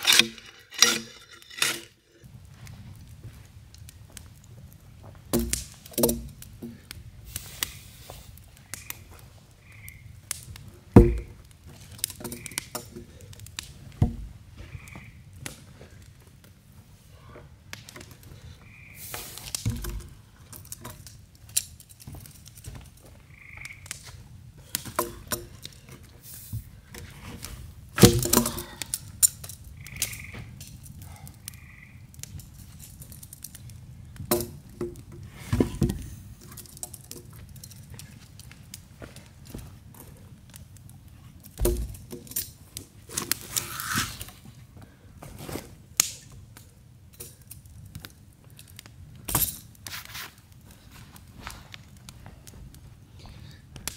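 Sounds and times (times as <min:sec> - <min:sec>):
wood fire crackling: 0:00.0 - 0:53.9
heavy knocks of log: 0:05.3 - 0:06.7, 0:11.0 - 0:11.4, 0:14.0 - 0:14.3, 0:28.0 - 0:28.7, 0:41.6 - 0:42.1.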